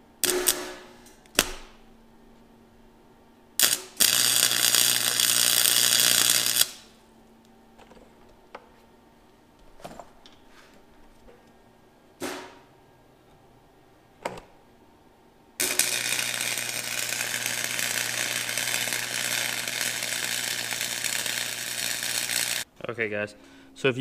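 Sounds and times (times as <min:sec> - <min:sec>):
welding arc crackling: 0:00.2 - 0:01.8, 0:03.6 - 0:07.0, 0:15.6 - 0:22.7.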